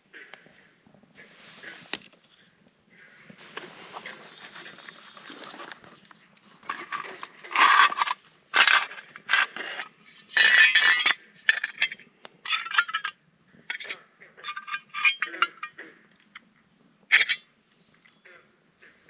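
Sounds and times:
metal scraping and clinking: 0:03.4 - 0:15.8, 0:17.1 - 0:17.5.

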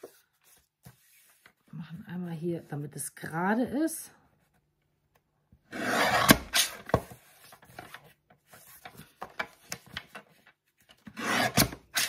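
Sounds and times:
paper shuffling: 0:00.0 - 0:01.7.

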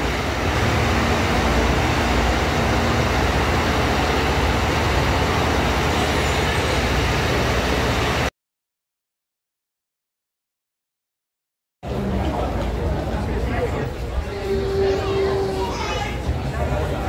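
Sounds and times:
train rumbling past: 0:00.0 - 0:08.3, 0:11.8 - 0:17.0.

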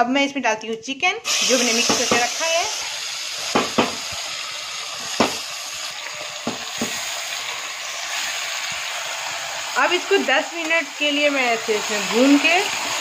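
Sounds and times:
chicken sizzling in oil: 0:01.3 - 0:13.0.

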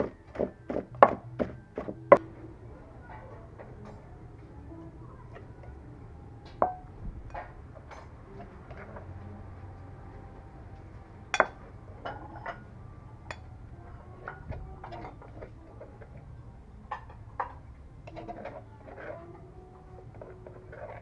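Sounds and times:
spoon scraping in mortar: 0:18.1 - 0:19.4, 0:20.0 - 0:21.0.

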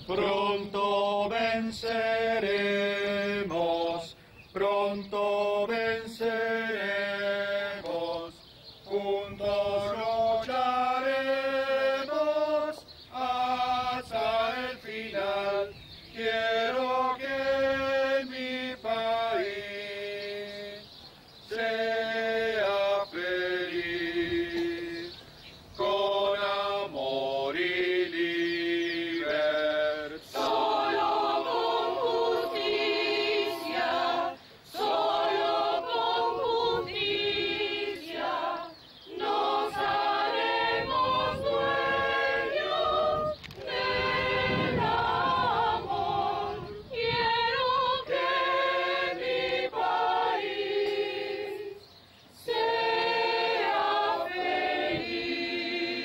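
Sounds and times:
mixed choir singing a cappella: 0:00.0 - 0:56.0.

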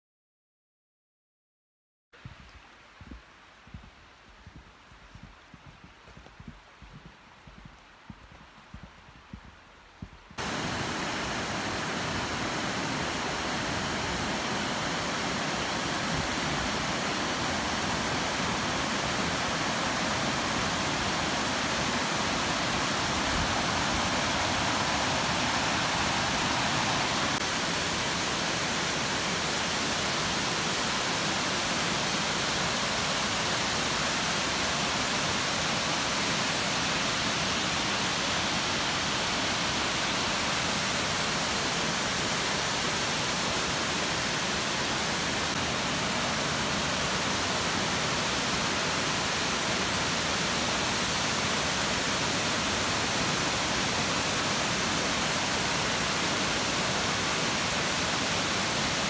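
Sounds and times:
waterfall pouring water: 0:10.4 - 0:59.0.

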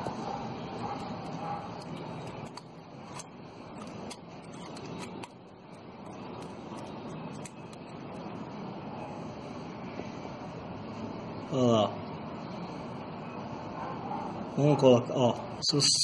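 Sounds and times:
steady background noise: 0:00.0 - 0:16.0
feeler gauge clicking and scraping: 0:00.8 - 0:08.3.

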